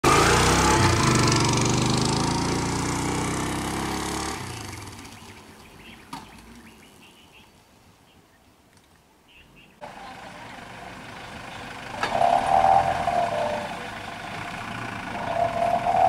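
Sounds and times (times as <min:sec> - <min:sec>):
vehicle engine running: 0:00.0 - 0:06.0, 0:09.8 - 0:16.0
faint birds chirping: 0:04.4 - 0:16.0.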